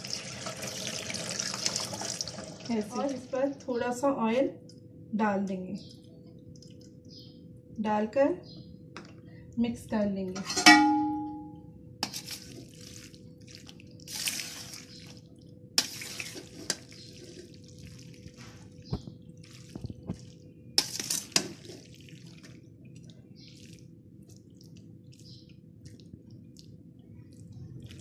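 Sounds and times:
pasta squelching in strainer: 12.0 - 26.7.

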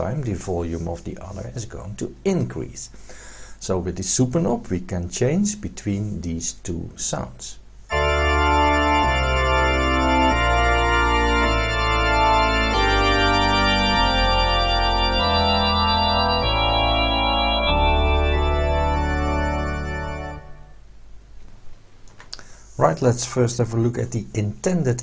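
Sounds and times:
stepping bass line: 7.9 - 20.6
keyboard chords: 7.9 - 20.8.

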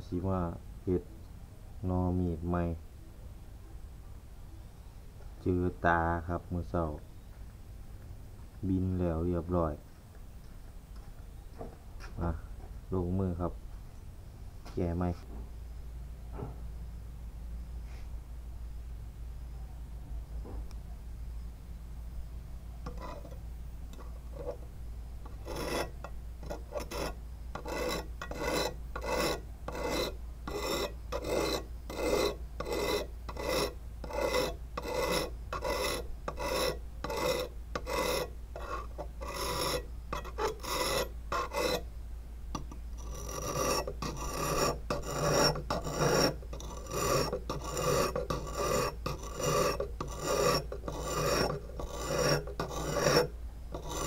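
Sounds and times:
steel scraping on sharpening stone: 22.8 - 24.6, 25.2 - 41.9, 42.6 - 54.0.

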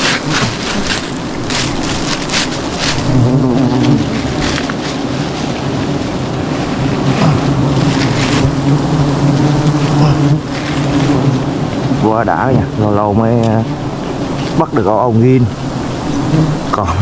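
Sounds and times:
handling rustles: 0.0 - 11.3
bees buzzing: 0.0 - 17.0.

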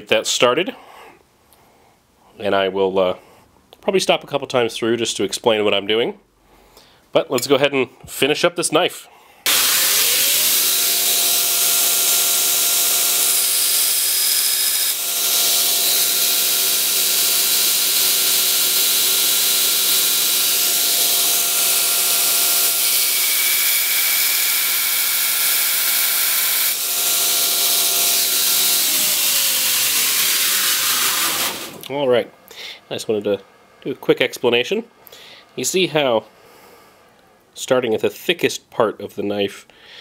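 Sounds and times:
belt grinder motor whine: 9.5 - 31.9.

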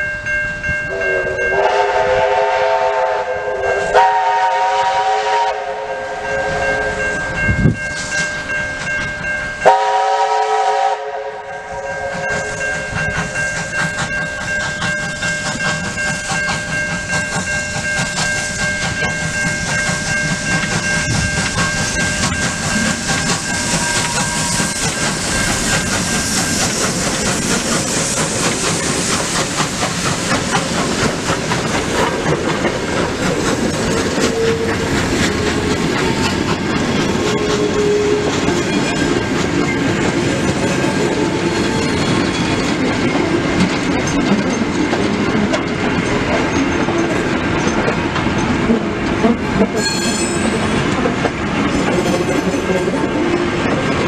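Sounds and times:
steam whistle: 0.9 - 7.1, 9.6 - 12.9, 34.2 - 35.7, 37.2 - 38.5, 49.6 - 50.8
train wheels clickety-clack: 6.9 - 54.0
steam hiss: 12.0 - 38.4.

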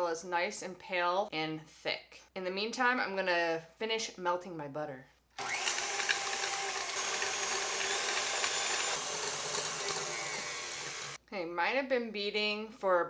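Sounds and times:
stand mixer whisking: 5.4 - 11.2.

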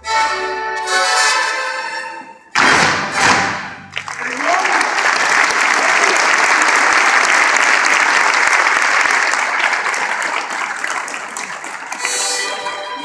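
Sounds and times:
hands clapping close by: 3.3 - 12.6
audience applauding: 3.3 - 13.0.

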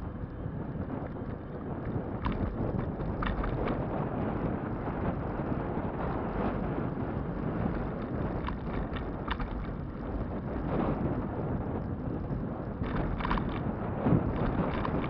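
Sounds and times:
tyres rumbling on road: 0.0 - 15.0
wind buffeting microphone: 0.0 - 15.0
short rattles: 14.3 - 15.0.

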